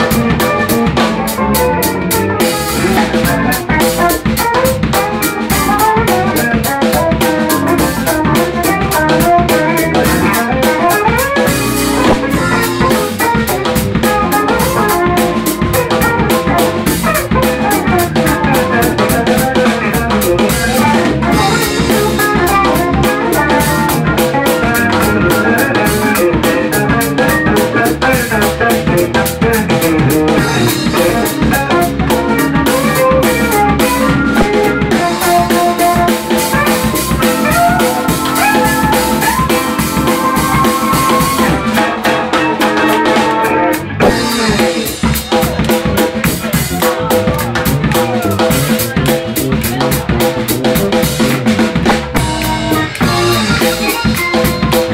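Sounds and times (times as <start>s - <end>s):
drum kit rimshots: 0.0s - 54.9s
electric bass: 0.0s - 54.9s
funk band playing: 0.0s - 54.9s
guitar-like lead line: 0.0s - 54.9s
hand drums: 2.1s - 43.4s, 44.0s - 54.9s.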